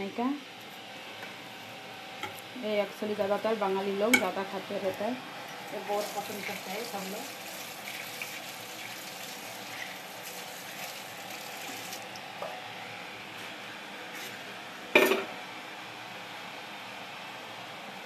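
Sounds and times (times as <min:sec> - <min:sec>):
water running: 0:05.4 - 0:12.4.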